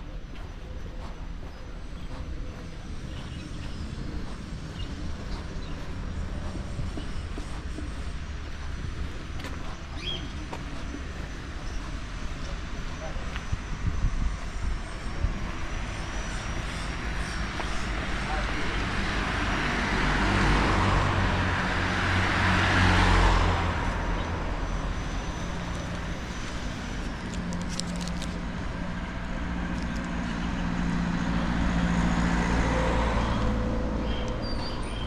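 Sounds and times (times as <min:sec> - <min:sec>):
vehicle engine humming: 0:00.0 - 0:35.0
car passing by: 0:18.2 - 0:27.0.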